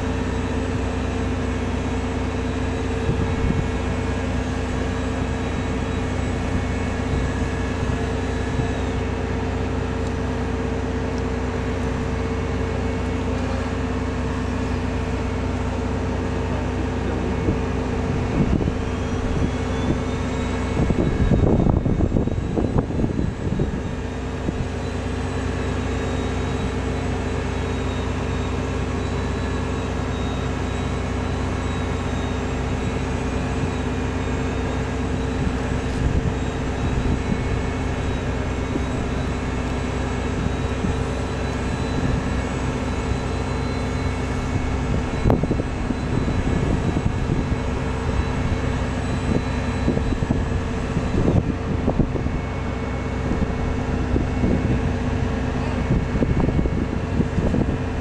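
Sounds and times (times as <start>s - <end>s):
machinery drone with tones: 0.0s - 58.0s.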